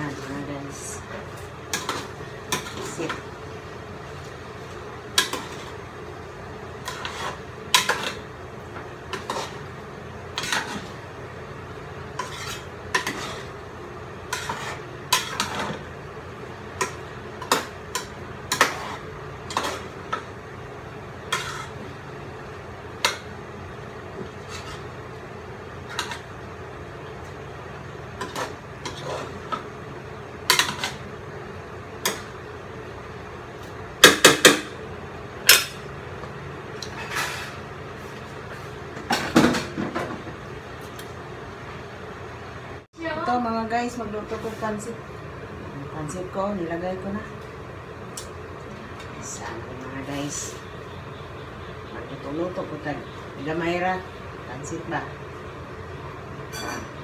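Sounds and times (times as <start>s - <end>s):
steady background hum: 0.0s - 57.0s
utensil scraping metal pot: 6.8s - 8.2s, 9.1s - 9.7s, 10.3s - 11.0s, 12.1s - 13.6s, 14.2s - 15.9s, 16.8s - 20.2s, 21.3s - 21.9s, 24.3s - 25.0s, 28.2s - 29.6s.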